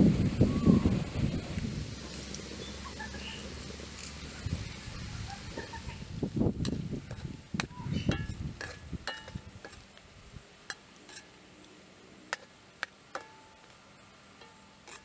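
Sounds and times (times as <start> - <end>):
stick tapping a metal pan: 6.6 - 9.8, 12.3 - 13.6.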